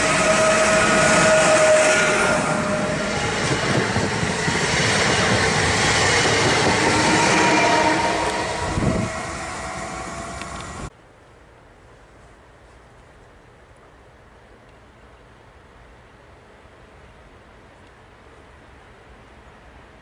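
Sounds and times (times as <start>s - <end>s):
train whining tones: 0.0s - 10.9s
train wheel and rail noise: 0.0s - 20.0s.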